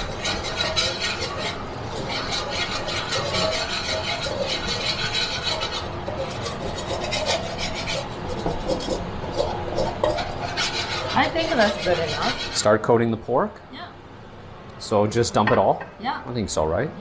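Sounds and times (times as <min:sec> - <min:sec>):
metal spatula scraping a wok: 0:00.0 - 0:12.7.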